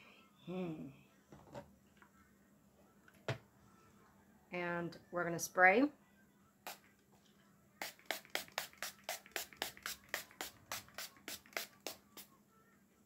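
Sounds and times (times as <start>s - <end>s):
spray bottle hissing sprays: 7.8s - 12.3s.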